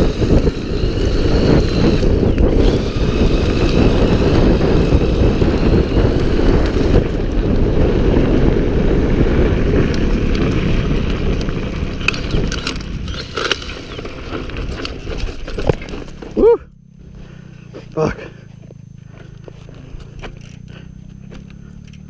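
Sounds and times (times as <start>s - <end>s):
bicycle chain clicking: 0.0s - 8.4s, 9.8s - 16.5s, 19.4s - 22.0s
wind rushing over microphone: 0.0s - 16.6s
tyres rumbling on dirt: 0.0s - 22.0s.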